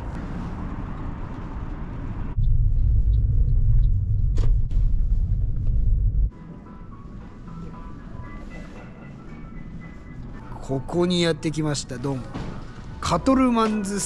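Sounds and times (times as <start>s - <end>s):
car road and engine rumble: 0.0s - 6.3s.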